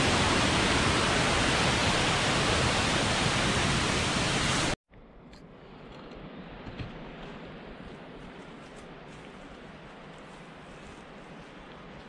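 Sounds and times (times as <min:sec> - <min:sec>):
waterfall rushing: 0:00.0 - 0:04.8.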